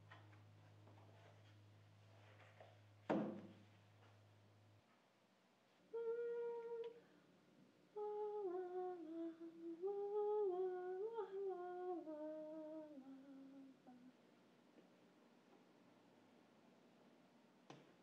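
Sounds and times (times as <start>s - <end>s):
woman humming: 5.9s - 7.1s, 7.9s - 14.2s.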